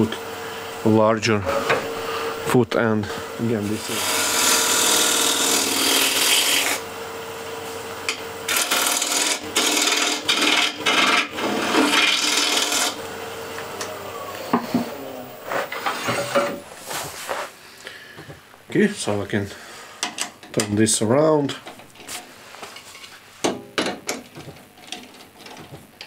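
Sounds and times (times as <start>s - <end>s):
lathe humming: 0.0s - 16.8s
gouge cutting wood on lathe: 3.2s - 6.8s, 8.1s - 13.1s.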